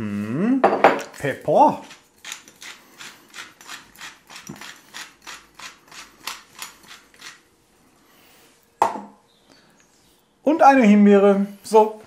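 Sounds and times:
pepper mill grinding: 1.0s - 7.5s.

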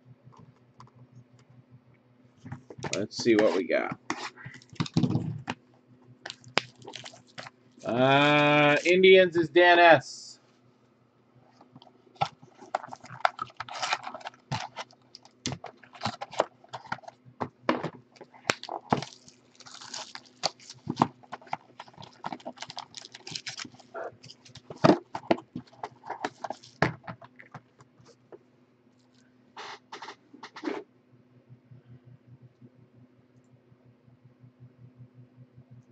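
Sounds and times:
foil wrappers crinkling: 6.3s - 7.5s, 12.2s - 17.1s, 18.1s - 27.5s.

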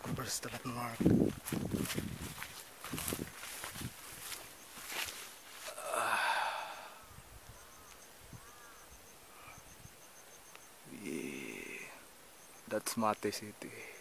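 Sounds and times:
footsteps on grass: 0.0s - 5.9s
heavy sighing breath: 5.6s - 7.2s
faint high chirps: 6.4s - 14.0s.

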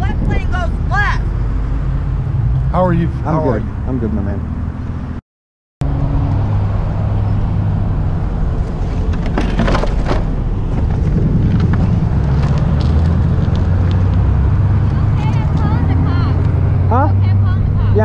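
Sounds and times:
road noise: 0.0s - 5.2s, 5.8s - 18.0s
motorcycle rattling clatter: 8.7s - 14.1s.

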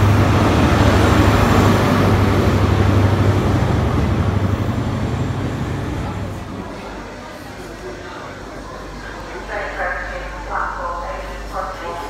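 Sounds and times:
wheel and rail rumble: 0.0s - 7.1s
diesel train engine drone: 0.0s - 12.0s.

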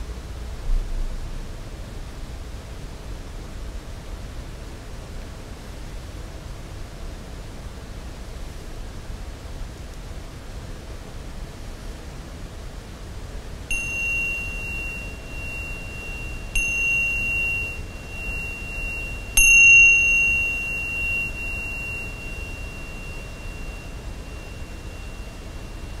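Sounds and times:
tingsha cymbals ringing: 13.7s - 26.0s.

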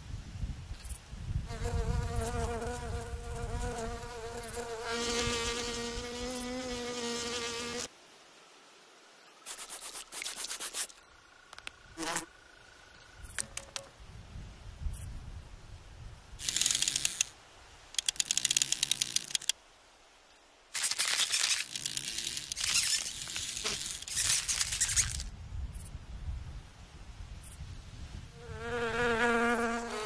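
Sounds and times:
insect scratchy rustling: 9.4s - 11.1s, 16.4s - 17.3s, 18.0s - 19.5s, 20.7s - 25.3s
rapid insect clicking: 9.5s - 12.3s, 16.4s - 19.6s, 20.8s - 25.3s.

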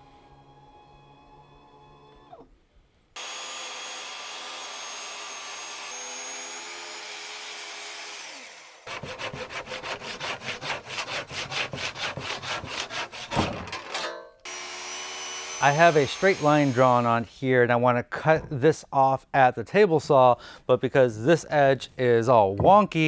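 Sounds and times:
track saw cutting wood: 3.2s - 13.4s, 14.4s - 17.2s
handsaw strokes through wood: 8.2s - 13.4s, 15.5s - 17.1s.

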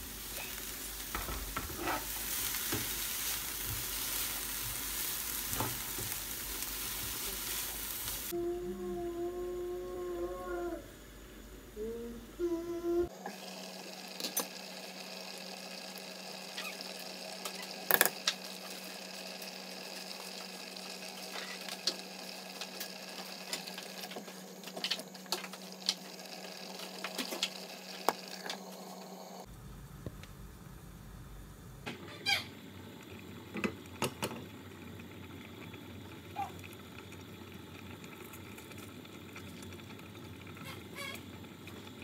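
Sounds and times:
pot boiling: 0.0s - 10.8s, 11.4s - 42.0s.

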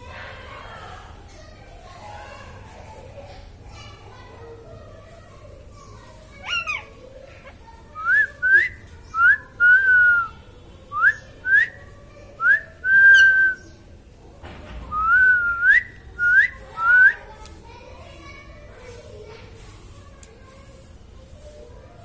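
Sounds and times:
parakeet whistling: 6.4s - 6.9s.

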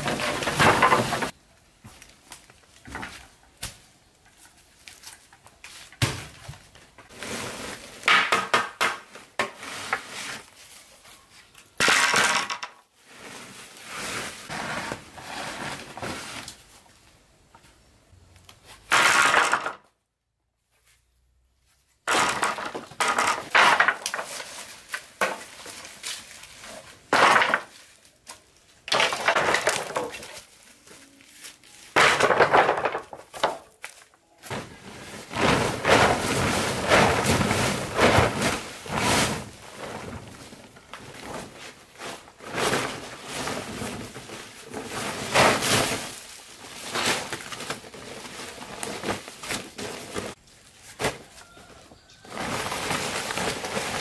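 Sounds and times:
plastic tarpaulins crinkling: 0.0s - 17.9s, 21.8s - 54.0s.

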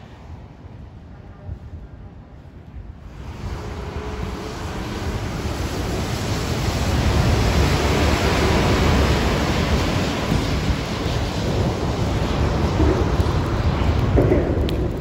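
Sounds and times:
bus passing: 3.0s - 15.0s.

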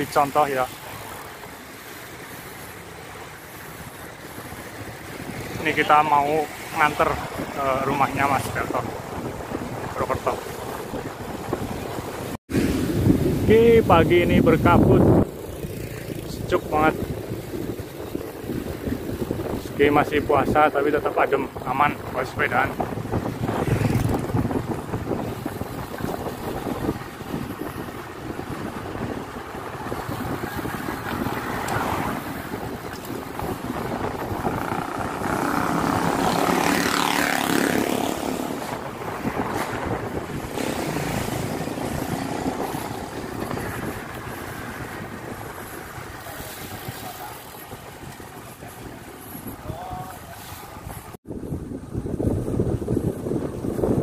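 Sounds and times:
bike road noise: 0.0s - 54.0s
wind rushing over microphone: 0.0s - 54.0s
vehicle engine passing: 23.2s - 25.2s, 33.7s - 45.4s.

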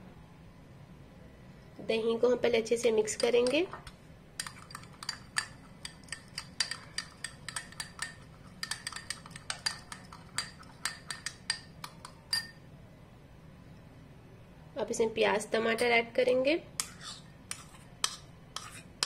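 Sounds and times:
spoon clinking against glass bowl: 3.1s - 12.6s.

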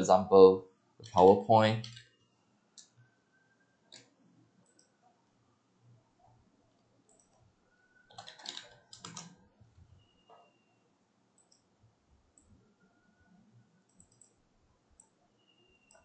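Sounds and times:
computer keyboard keystrokes: 1.8s - 2.1s, 8.1s - 9.4s, 13.9s - 14.3s
faint mouse clicks: 3.9s - 5.0s, 6.7s - 7.4s, 11.4s - 11.7s, 13.9s - 14.4s, 15.0s - 15.2s.

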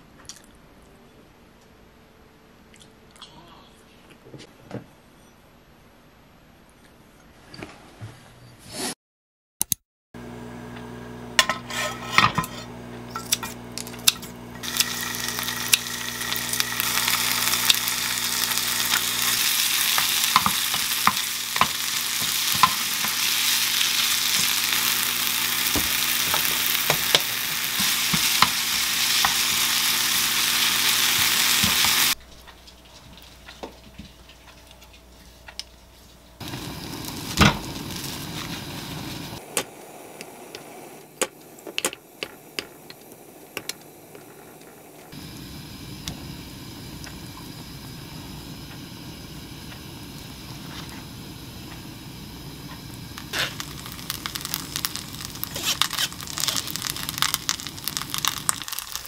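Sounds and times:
food sizzling in oil: 11.3s - 34.5s, 36.4s - 59.0s
wooden spoon tapping and scraping: 19.9s - 23.3s.

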